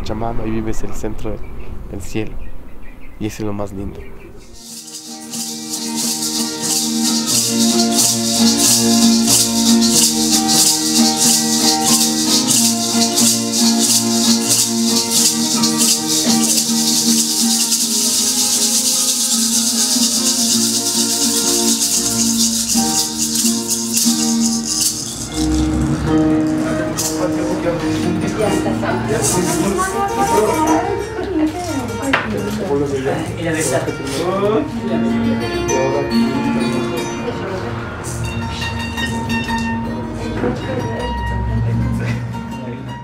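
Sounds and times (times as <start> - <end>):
maraca shaken: 4.5 - 35.2, 36.1 - 41.6
harp: 4.6 - 32.6
small guitar plucked: 4.6 - 33.0, 33.7 - 43.0.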